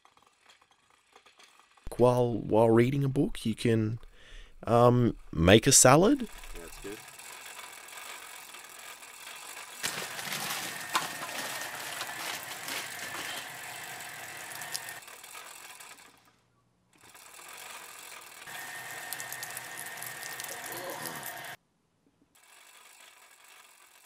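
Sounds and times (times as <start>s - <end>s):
bicycle chain and hub ratcheting: 0.0s - 1.9s, 5.8s - 16.3s, 17.0s - 21.6s, 22.4s - 24.0s.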